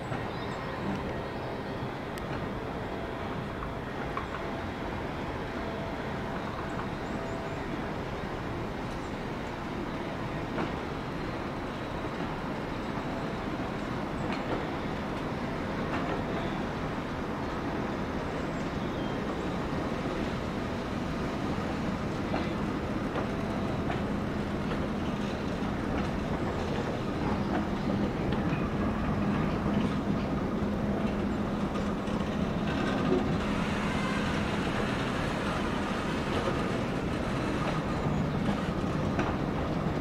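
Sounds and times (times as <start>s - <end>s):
diesel locomotive hum: 0.0s - 40.0s
train wheels clicking over rail joints: 21.4s - 40.0s.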